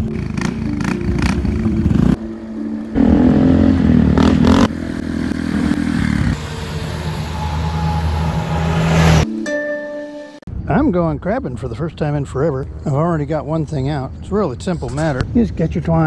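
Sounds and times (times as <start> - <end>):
motor scooter engine pulling away: 0.0 - 9.2.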